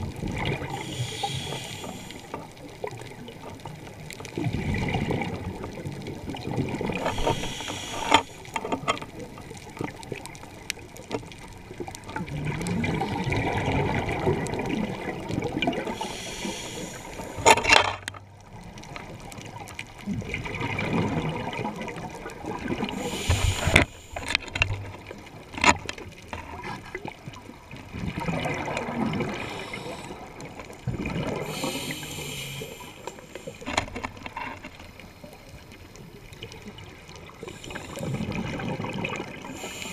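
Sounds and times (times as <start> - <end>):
underwater exhaled bubbles: 0.0 - 39.9
regulator hissing inhalations: 0.8 - 2.4, 7.0 - 8.6, 15.9 - 17.5, 22.9 - 24.6, 29.3 - 30.3, 31.4 - 33.7, 37.5 - 38.2, 39.5 - 39.9.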